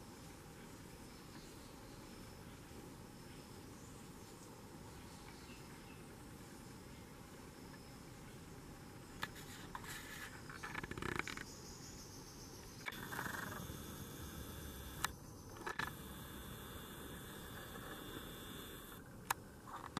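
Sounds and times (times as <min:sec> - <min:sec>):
faint hiss: 0:00.0 - 0:10.8, 0:11.6 - 0:19.9
rustling scrapes: 0:09.3 - 0:10.8
camera clicks: 0:12.9 - 0:19.4.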